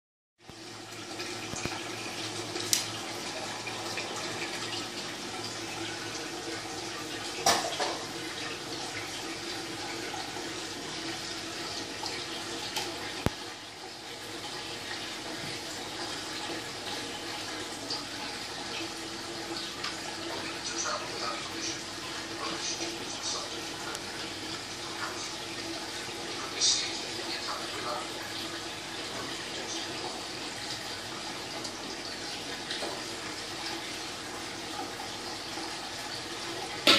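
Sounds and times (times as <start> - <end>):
aquarium water splashing: 0.4 - 36.9.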